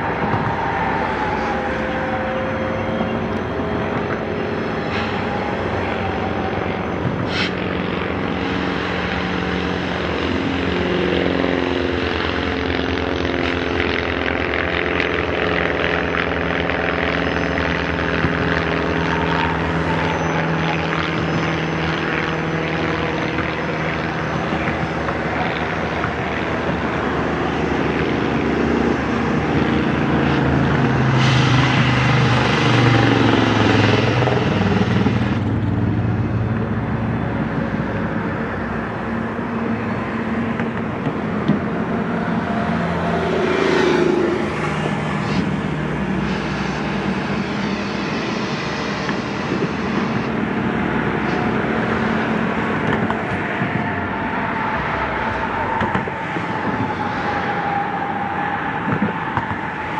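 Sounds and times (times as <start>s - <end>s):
diesel locomotive drone: 0.0s - 59.9s
hiss: 7.2s - 7.6s.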